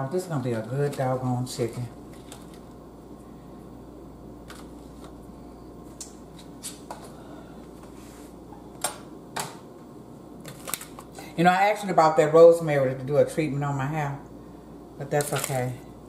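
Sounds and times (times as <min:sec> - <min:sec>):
plastic herb pack clicks and rustles: 0:10.5 - 0:11.1, 0:15.2 - 0:15.6.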